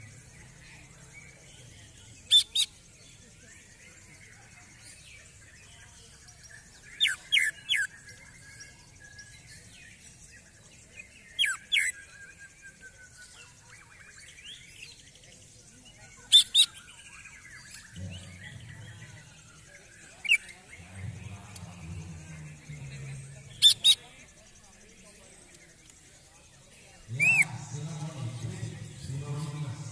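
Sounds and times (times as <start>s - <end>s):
soft bird chattering: 2.1s - 3.2s, 4.7s - 8.6s, 9.2s - 27.7s
bird whistled song notes: 27.2s - 27.5s.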